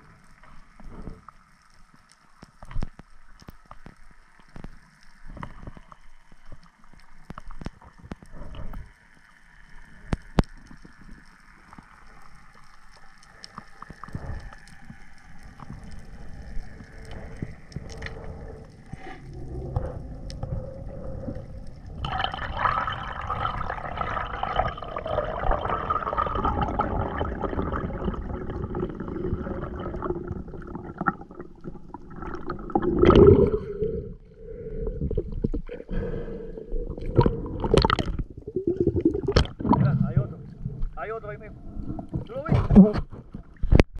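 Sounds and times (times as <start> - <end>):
underwater droning hum: 0.0 - 43.8
underwater clicks: 10.0 - 33.9, 36.9 - 40.2.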